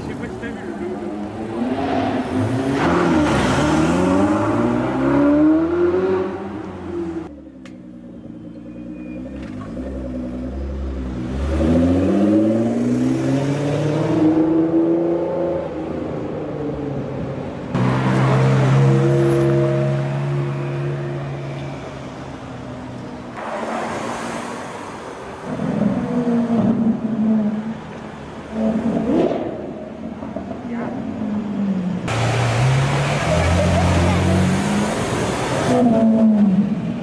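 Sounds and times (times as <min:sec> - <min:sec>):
car slowing and accelerating: 0:00.0 - 0:37.0
sports car accelerating hard: 0:01.0 - 0:07.2, 0:09.0 - 0:15.8.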